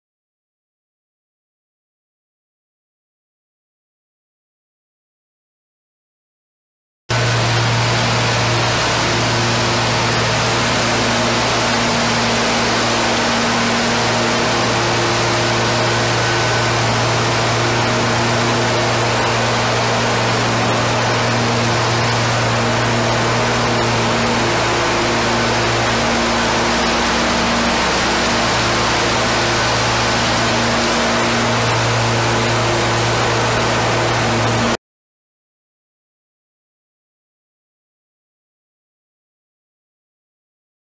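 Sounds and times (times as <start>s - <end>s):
power trowel engine drone: 7.1s - 34.8s.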